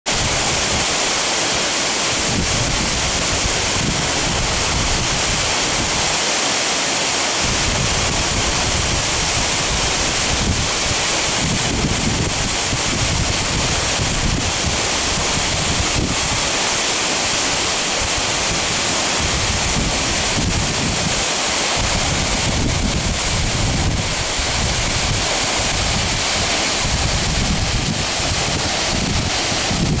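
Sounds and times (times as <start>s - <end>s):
waterfall rushing: 0.1s - 30.0s
wind buffeting microphone: 7.4s - 30.0s.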